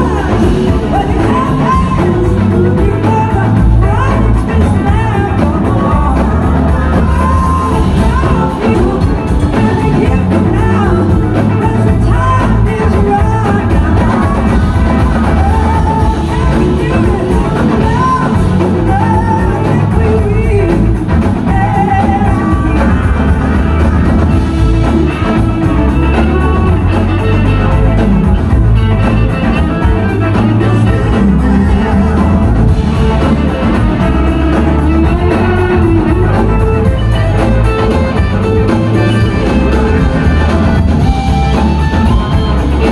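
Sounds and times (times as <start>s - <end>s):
rock band playing: 0.0s - 42.9s
woman singing: 0.0s - 42.9s.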